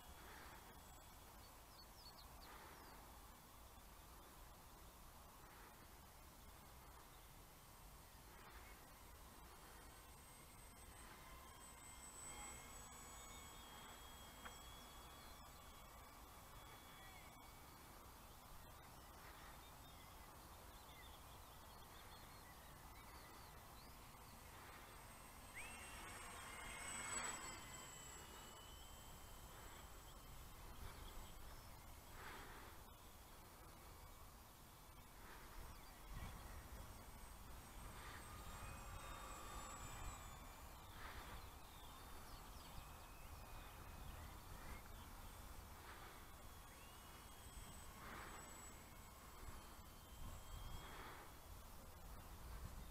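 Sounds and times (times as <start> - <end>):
faint bird chirps: 0.0 - 52.9
faint outdoor ambience: 0.0 - 52.9
model plane electric motor whine: 0.0 - 52.9
bird chirps: 9.7 - 33.3.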